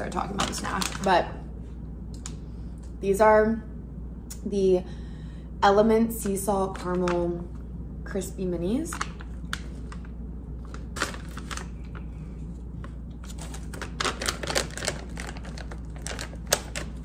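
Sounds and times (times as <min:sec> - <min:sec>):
plastic snack pouch crinkling: 0:08.9 - 0:12.1, 0:13.3 - 0:17.0.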